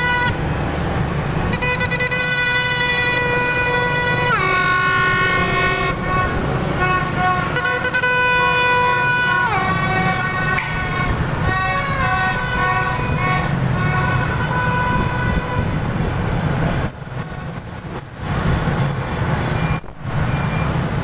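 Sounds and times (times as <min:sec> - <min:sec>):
horns blown in long blasts: 0:00.0 - 0:16.1
motorbike traffic rumble: 0:00.0 - 0:21.0.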